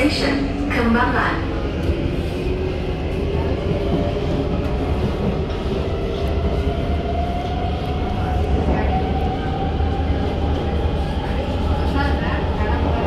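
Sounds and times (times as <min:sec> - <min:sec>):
train running gear rumble: 0:00.0 - 0:13.0.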